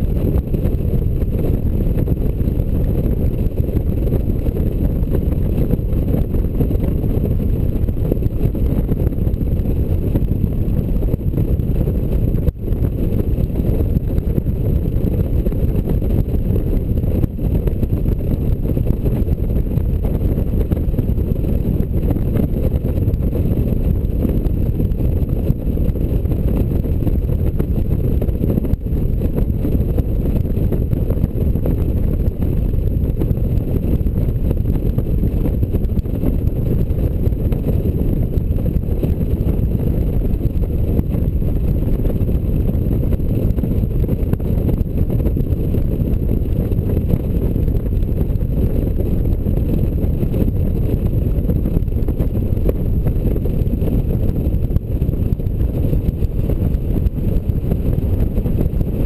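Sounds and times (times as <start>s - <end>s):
wind rumble on microphone: 0.0s - 59.0s.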